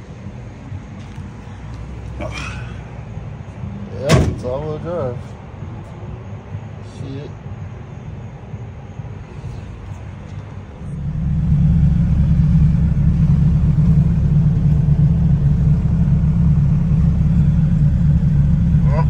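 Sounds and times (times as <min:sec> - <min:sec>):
car engine low drone: 0:00.0 - 0:19.0.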